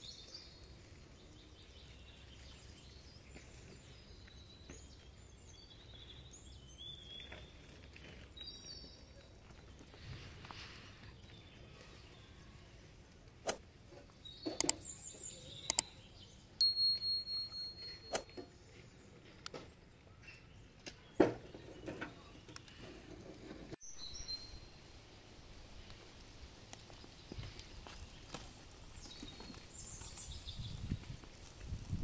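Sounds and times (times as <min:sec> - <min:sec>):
ringing note: 0:16.6 - 0:18.4.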